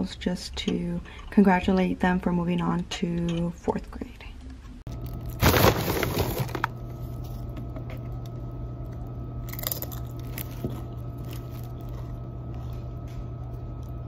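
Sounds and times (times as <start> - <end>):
steady low hum: 0.0 - 14.0
chip crunching: 4.9 - 14.0.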